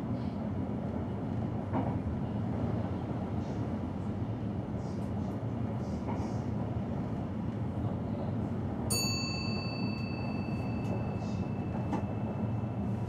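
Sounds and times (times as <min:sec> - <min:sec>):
train rumbling on track: 0:00.0 - 0:13.0
cab bell ringing: 0:08.9 - 0:13.0.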